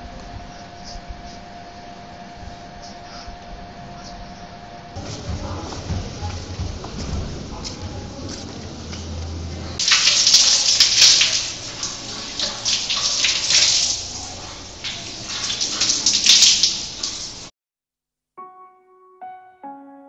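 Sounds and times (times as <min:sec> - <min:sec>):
tap water splashing on tiles: 0:05.0 - 0:17.5.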